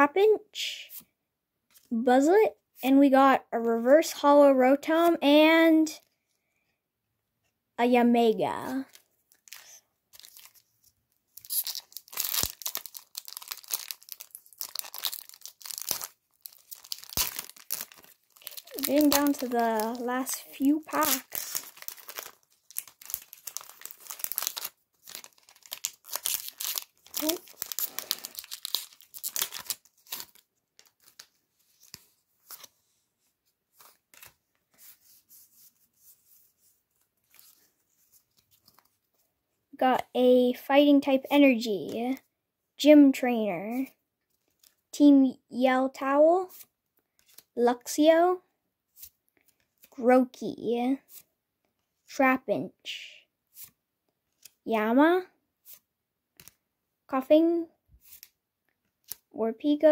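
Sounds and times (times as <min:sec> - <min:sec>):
cards rustling and sliding: 0:08.6 - 0:39.2, 0:46.5 - 0:47.5, 0:48.9 - 0:50.0, 0:51.1 - 0:51.3, 0:53.5 - 0:54.6, 0:55.6 - 0:56.6, 0:58.0 - 0:59.3
foil wrapper crinkling and tearing: 0:08.9 - 0:10.7, 0:11.3 - 0:32.0.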